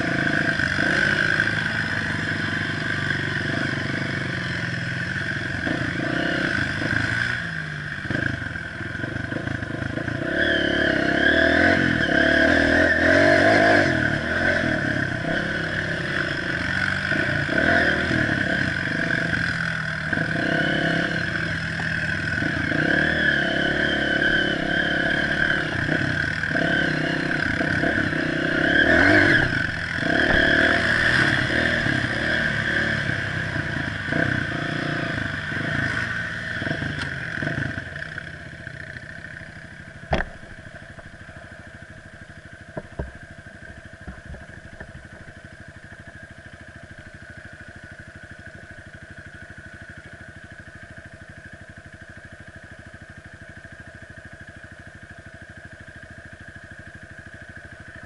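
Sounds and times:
dirt bike engine revving: 0:00.0 - 0:41.2.

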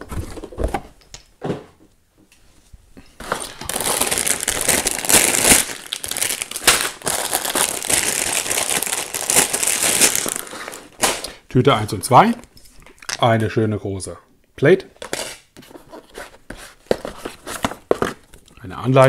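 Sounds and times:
plastic bags crinkling: 0:03.2 - 0:11.4.

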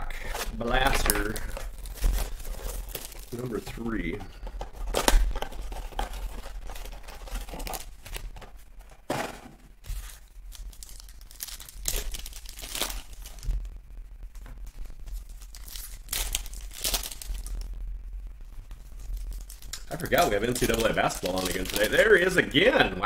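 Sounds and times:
foil packs crinkling: 0:00.0 - 0:09.0, 0:09.8 - 0:13.6, 0:14.4 - 0:17.7, 0:18.6 - 0:23.0
foil pack ripping: 0:00.1 - 0:08.9, 0:09.8 - 0:13.6, 0:14.6 - 0:17.7, 0:18.6 - 0:23.0
cardboard box tearing: 0:00.2 - 0:08.2.

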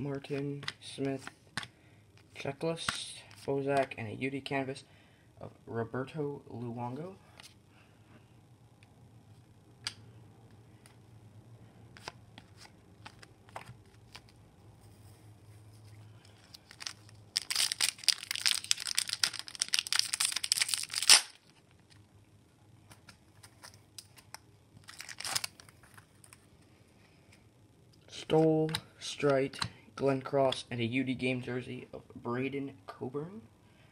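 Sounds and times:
foil pack crinkling and tearing: 0:16.3 - 0:21.6, 0:23.4 - 0:26.4.

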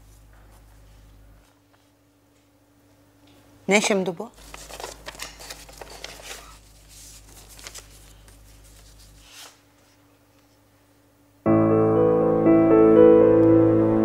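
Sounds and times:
paper rustling: 0:04.4 - 0:10.6.

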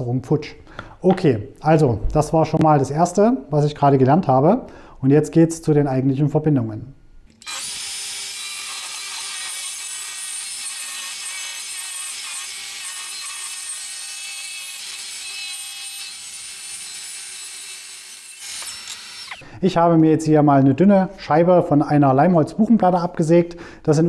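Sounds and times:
circular saw cutting wood: 0:07.3 - 0:19.4.

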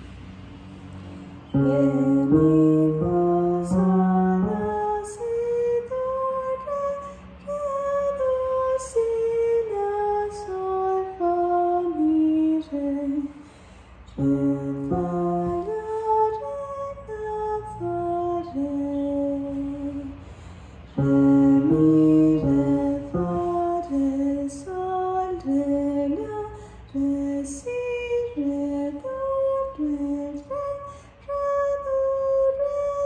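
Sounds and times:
chords: 0:01.5 - 0:08.8, 0:14.1 - 0:20.1, 0:20.9 - 0:26.5
woman singing a melody: 0:01.5 - 0:13.4, 0:14.2 - 0:20.2, 0:21.0 - 0:33.0.

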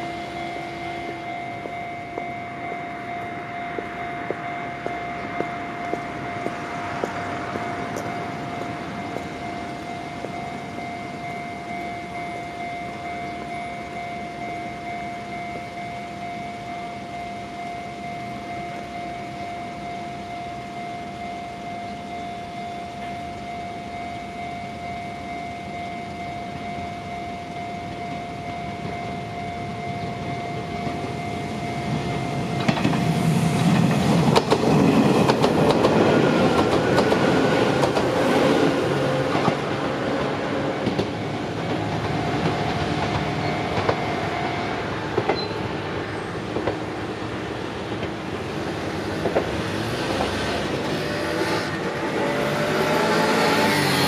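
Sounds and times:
level crossing alarm ringing: 0:00.0 - 0:54.0
train wheels clacking over rail joints: 0:32.5 - 0:45.6, 0:46.5 - 0:47.0, 0:47.8 - 0:54.0.

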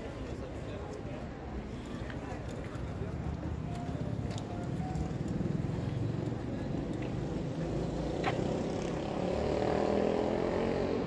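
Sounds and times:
passing vehicle engine rumble: 0:02.3 - 0:11.0.

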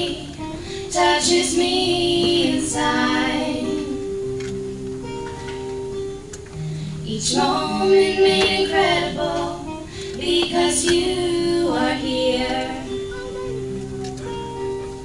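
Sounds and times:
woman singing: 0:00.0 - 0:04.2, 0:07.0 - 0:13.0
acoustic guitar chords: 0:00.0 - 0:15.0.

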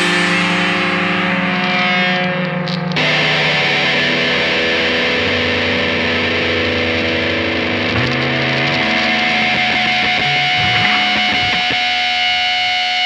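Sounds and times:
distorted electric guitar chords: 0:00.0 - 0:13.0
low bass note: 0:08.0 - 0:11.9.

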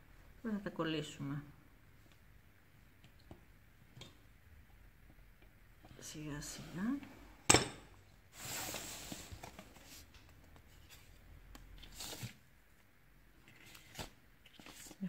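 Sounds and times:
hands handling modelling clay: 0:08.2 - 0:15.0.

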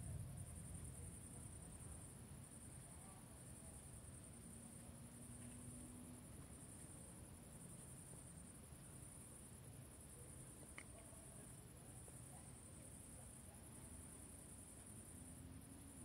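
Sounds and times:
crickets chirring: 0:00.0 - 0:16.0
soft click: 0:10.7 - 0:11.0.

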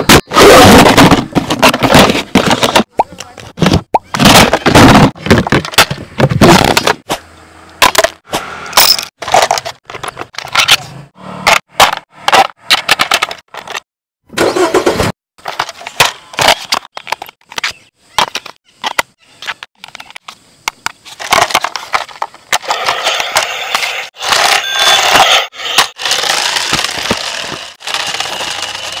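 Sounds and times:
toy bus running over asphalt: 0:21.3 - 0:29.0.

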